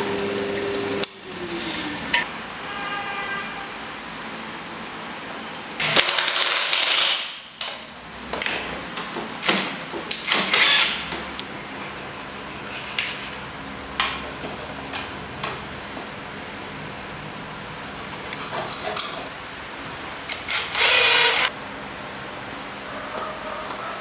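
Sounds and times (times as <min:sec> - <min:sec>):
cordless driver driving screw: 0:10.2 - 0:11.1, 0:20.3 - 0:21.5.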